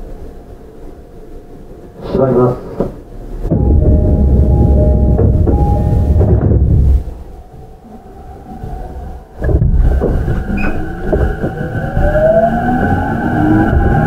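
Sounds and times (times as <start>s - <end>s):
train running noise: 0.0s - 14.0s
inverter and motor whine: 2.8s - 14.0s.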